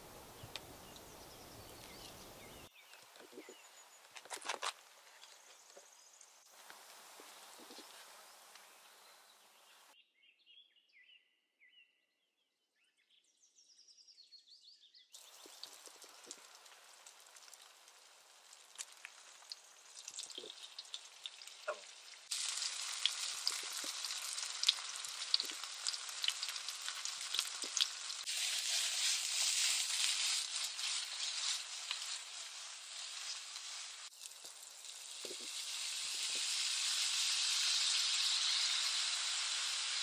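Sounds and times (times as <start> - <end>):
fire crackling: 0.0 - 9.0, 15.2 - 40.0
tofu sizzling and popping in oil: 15.2 - 40.0.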